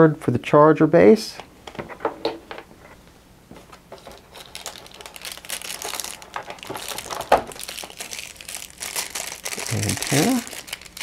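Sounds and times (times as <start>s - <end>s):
plastic packaging crinkling: 3.9s - 11.0s.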